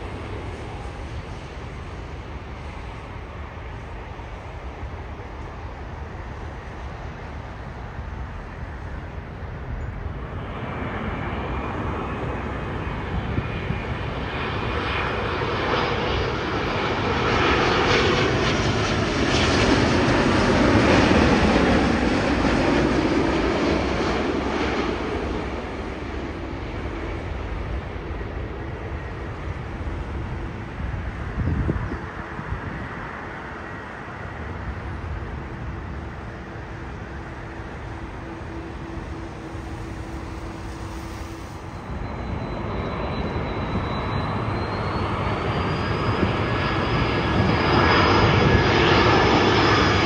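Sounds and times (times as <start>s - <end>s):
jet airliner engines roaring: 0.0s - 50.0s.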